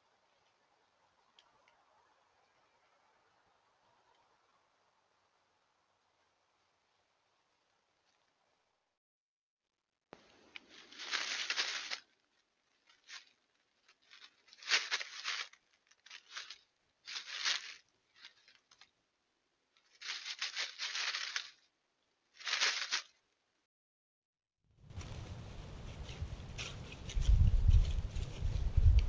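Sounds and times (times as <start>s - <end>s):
animal rustling through dry leaves: 10.2s - 18.9s, 19.8s - 21.6s, 22.3s - 23.2s, 24.8s - 29.0s.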